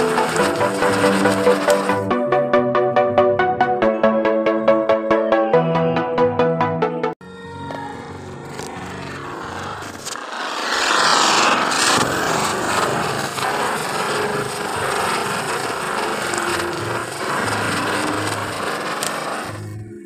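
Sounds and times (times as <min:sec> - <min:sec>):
spinning firework hissing: 0:00.0 - 0:02.1, 0:08.1 - 0:19.9.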